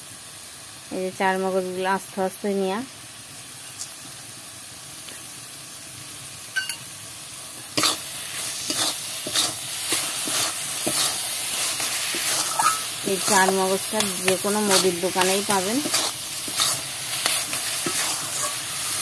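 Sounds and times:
faint sizzle: 0.0 - 19.0
spatula scraping metal pan: 7.8 - 19.0.

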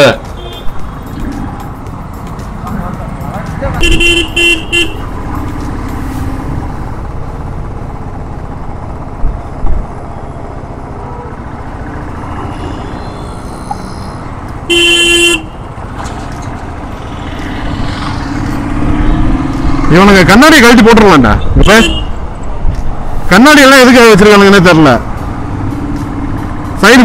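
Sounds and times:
vehicle horn blaring: 0.4 - 0.8, 3.8 - 5.1, 14.6 - 15.7, 21.6 - 22.2
motorcycle engine rumble: 0.9 - 20.6.

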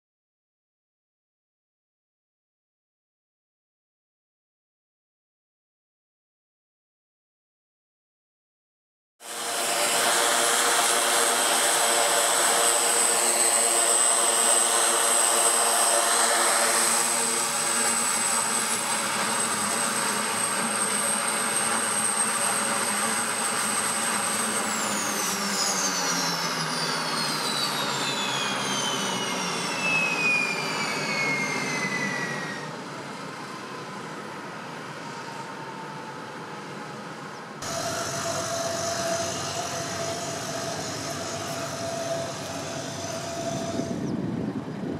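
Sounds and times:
propeller drone: 9.2 - 44.9
turbine whine: 9.2 - 44.9.

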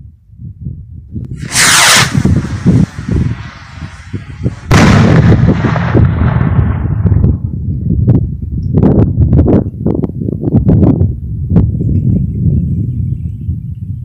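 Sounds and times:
firework rocket whooshing: 1.3 - 7.0
firework bursting with loud bang: 1.3 - 7.4.

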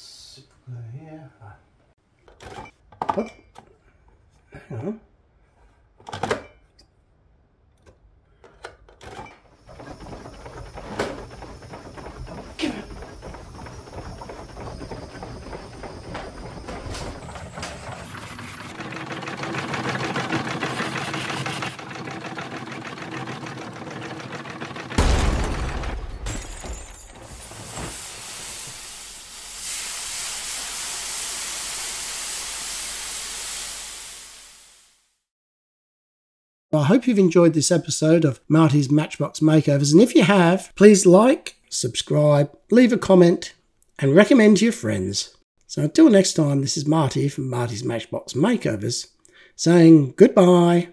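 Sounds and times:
steam hissing: 27.2 - 35.2.

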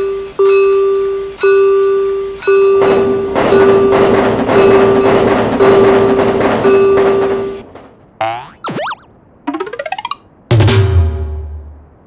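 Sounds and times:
railroad crossing bell ringing: 0.0 - 7.6
train passing: 0.0 - 8.2.

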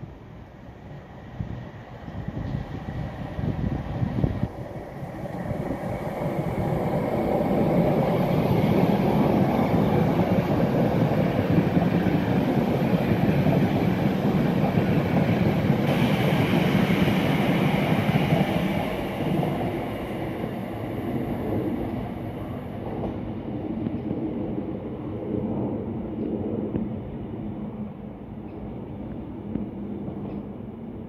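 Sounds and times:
train wheels rumbling on rails: 0.0 - 31.0
train hiss: 12.9 - 21.4.

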